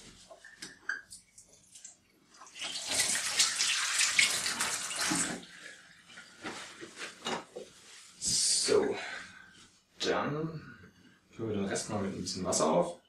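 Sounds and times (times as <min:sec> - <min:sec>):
hands rinsed under tap: 0:00.4 - 0:05.5
water tap running: 0:01.3 - 0:05.7.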